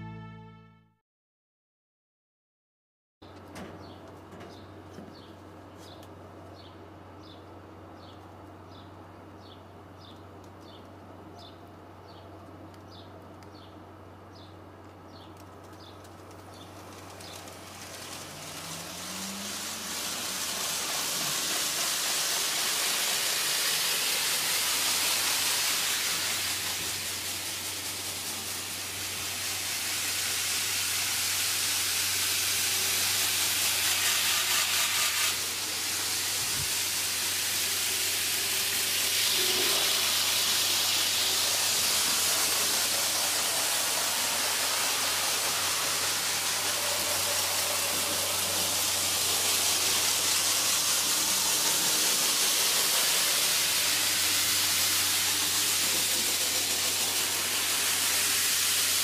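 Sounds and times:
low electrical hum: 3.2s - 34.3s
model trains rushing hiss: 15.7s - 59.0s.

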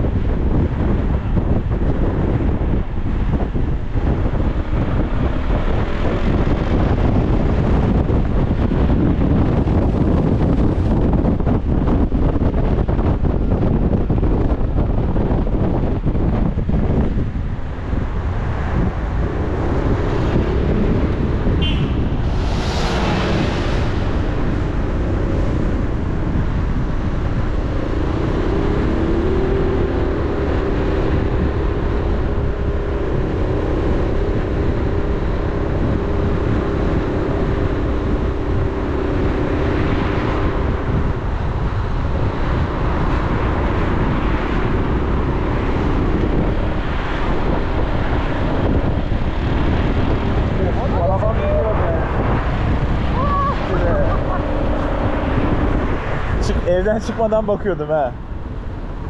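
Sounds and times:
car engine drone: 0.0s - 59.0s
low road rumble: 0.0s - 59.0s
brief rush of noise: 21.8s - 24.1s.

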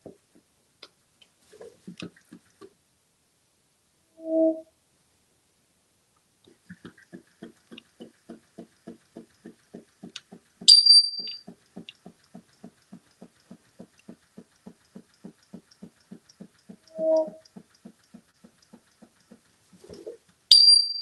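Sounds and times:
short high-pitched squeak: 4.2s - 4.7s, 10.7s - 11.4s, 17.0s - 17.4s, 20.5s - 21.0s.

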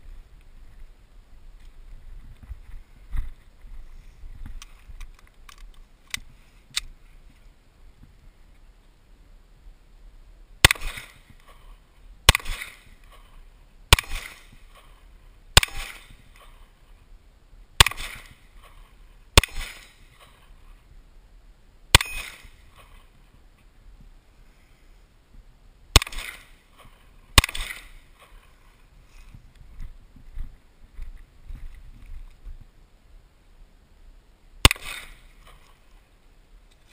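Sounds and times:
pistol shots with echo: 10.6s - 11.3s, 12.3s - 13.0s, 13.9s - 14.9s, 15.6s - 16.4s, 17.8s - 18.4s, 19.4s - 20.1s, 21.9s - 22.9s, 25.9s - 28.0s, 34.6s - 35.3s.

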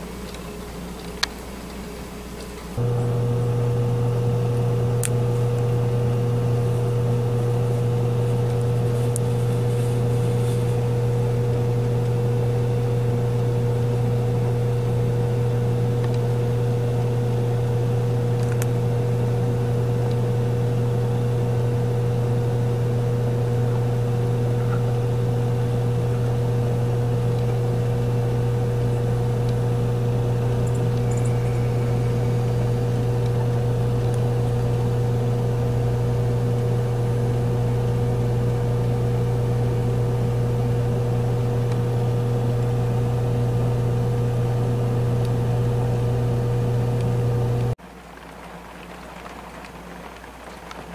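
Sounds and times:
low mechanical hum: 0.0s - 48.6s
steady high tone: 30.6s - 33.2s.

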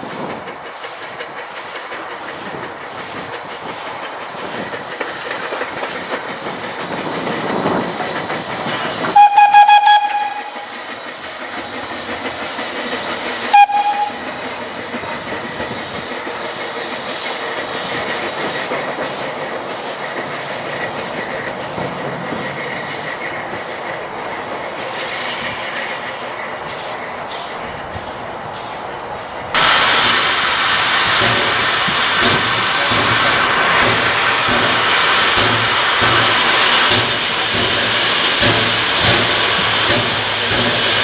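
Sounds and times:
steam engine chuffing: 0.0s - 41.0s
steam whistle: 9.1s - 10.6s, 13.5s - 14.2s.

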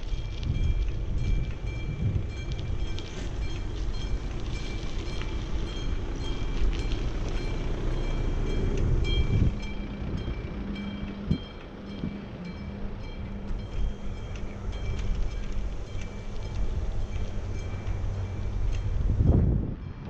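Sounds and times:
bicycle tyres rumbling on road: 0.0s - 20.0s
bike rattling with metallic pings: 0.0s - 20.0s
steady low hum: 0.0s - 20.0s.

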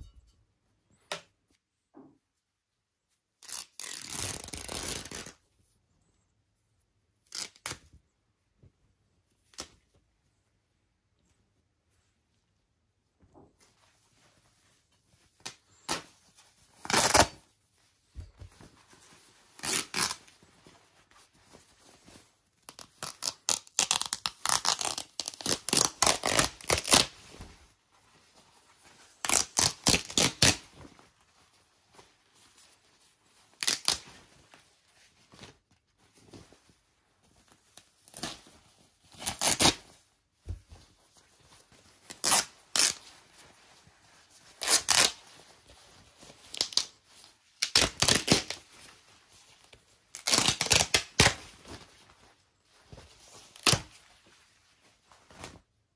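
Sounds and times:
leather tearing by hand: 3.4s - 5.3s, 19.6s - 20.2s, 23.0s - 27.1s, 39.2s - 39.8s, 42.2s - 43.0s, 50.2s - 51.4s.

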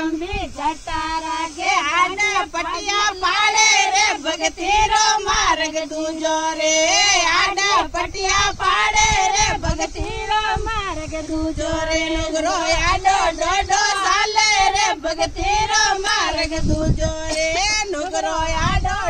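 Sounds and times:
women singing devotional song: 0.0s - 19.0s.

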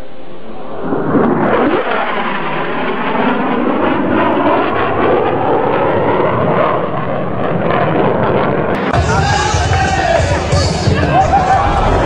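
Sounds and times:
fighter jet passing: 0.0s - 9.0s.

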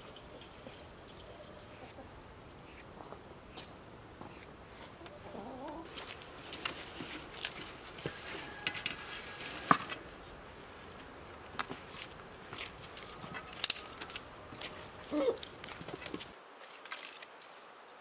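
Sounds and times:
hens clucking: 0.4s - 2.8s, 4.2s - 6.0s.

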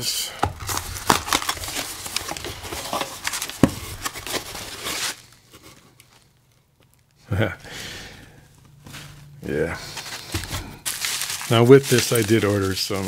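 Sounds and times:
cardboard flaps rustling: 0.4s - 5.2s, 9.8s - 13.0s
packing paper crinkling: 0.4s - 7.0s, 8.9s - 13.0s.

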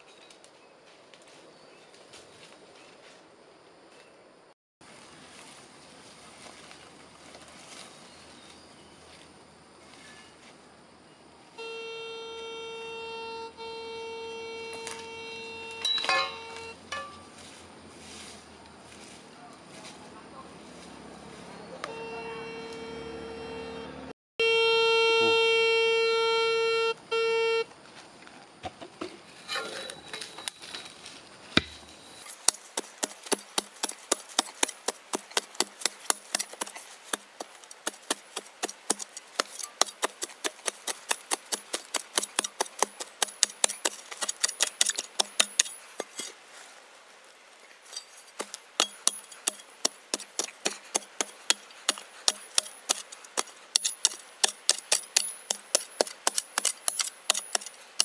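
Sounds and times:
metal detector signal tone: 13.6s - 16.8s
hand pick chopping into soil: 31.6s - 46.4s, 47.9s - 58.0s.

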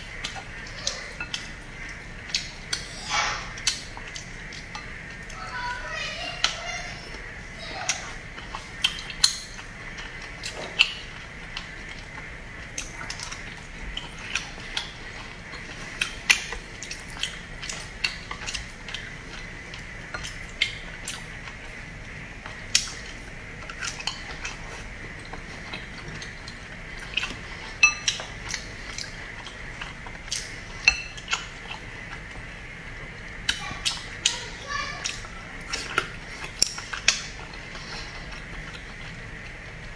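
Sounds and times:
chewing and wet mouth clicks: 0.0s - 5.4s, 7.8s - 34.4s, 35.0s - 39.9s
chopsticks tapping glass bowl: 27.8s - 28.2s.

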